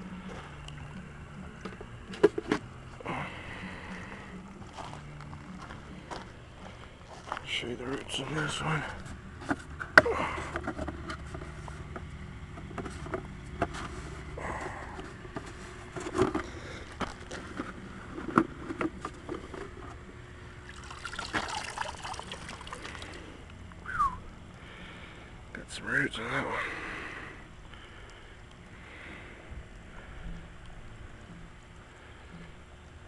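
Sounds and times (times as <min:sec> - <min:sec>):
water splashing and trickling: 0:20.6 - 0:23.4.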